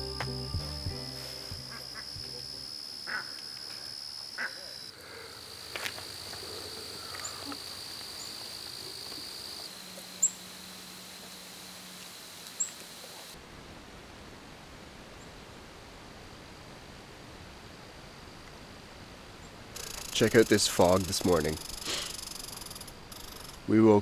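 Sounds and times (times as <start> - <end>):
crickets trilling: 0.0 - 13.4, 19.7 - 24.0.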